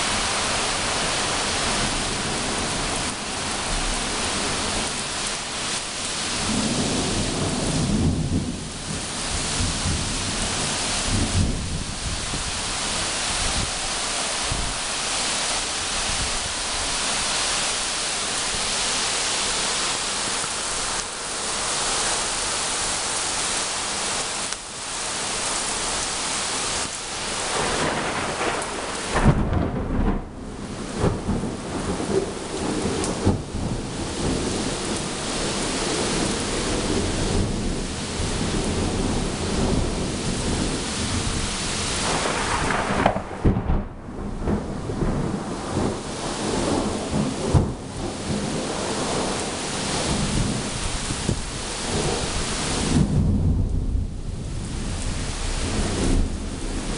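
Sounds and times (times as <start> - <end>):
thunder rumbling: 0.0 - 17.0, 27.1 - 56.9
rain pouring: 0.0 - 56.9
thunder clap: 6.4 - 12.5, 27.5 - 35.0, 38.6 - 56.9.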